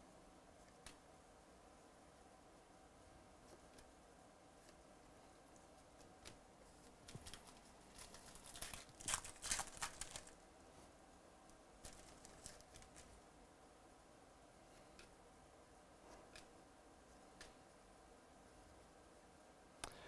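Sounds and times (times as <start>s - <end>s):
handling clicks and rustles: 4.6s - 10.4s, 11.4s - 13.2s
foil pack tearing: 7.3s - 10.3s.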